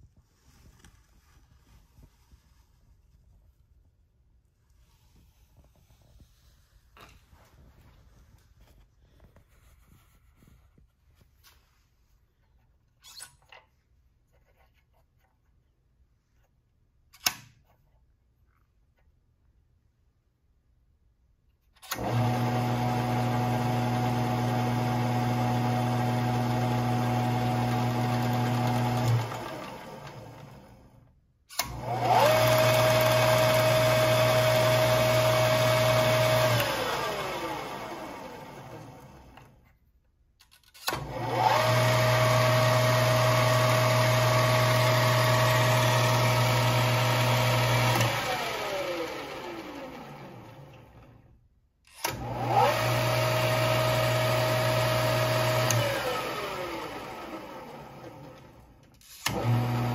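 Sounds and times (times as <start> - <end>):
lathe whining: 21.9 - 30.6, 31.6 - 39.1
lathe motor humming: 22.0 - 30.6, 32.0 - 38.8.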